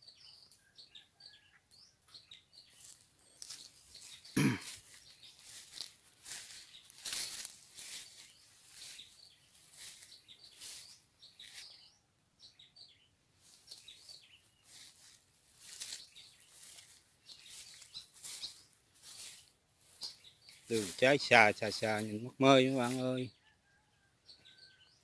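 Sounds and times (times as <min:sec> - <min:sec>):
small birds chirping: 0:00.0 - 0:25.0
rustling: 0:02.8 - 0:11.6, 0:14.7 - 0:20.8.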